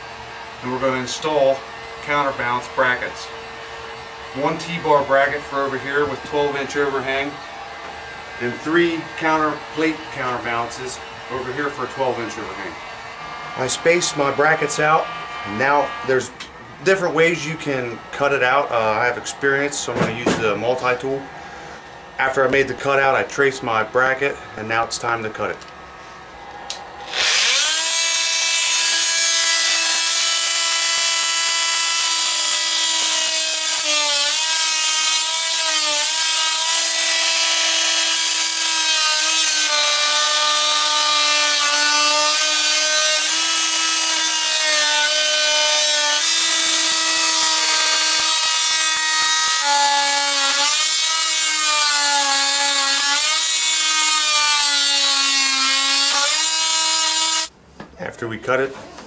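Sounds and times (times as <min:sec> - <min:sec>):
oscillating multi-tool cutting wood: 0:26.6 - 0:57.5.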